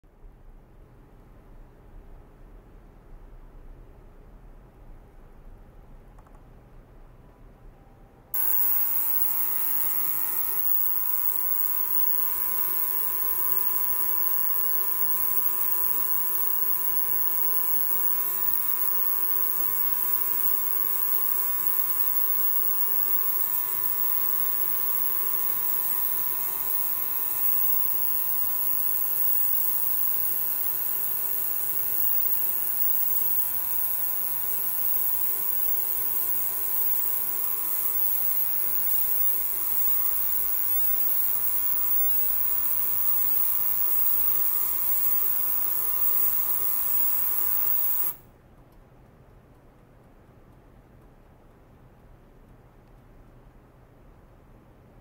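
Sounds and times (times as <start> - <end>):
high hiss: 8.4 - 48.2
ultrasonic cleaner buzzing hum: 8.4 - 48.2.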